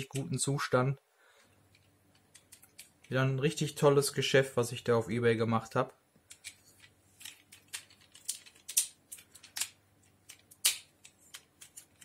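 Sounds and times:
plastic toy parts clicking: 1.7 - 3.2, 6.3 - 12.0.

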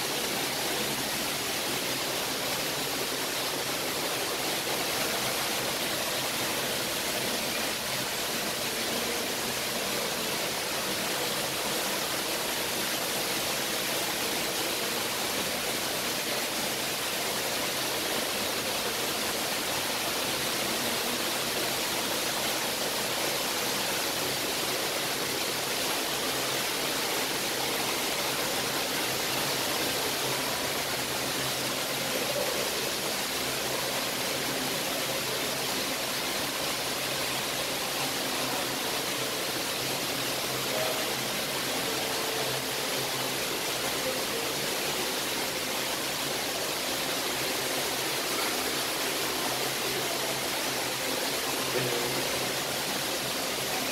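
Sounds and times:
rushing water noise: 0.0 - 53.9.

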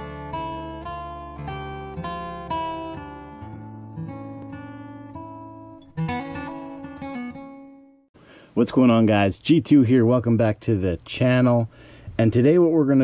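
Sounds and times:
strummed guitar chords: 0.0 - 8.0.

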